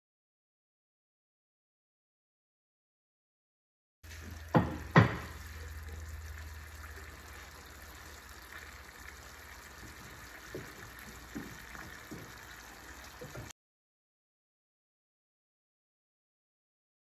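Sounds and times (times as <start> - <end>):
sharp knocks: 4.5 - 5.4.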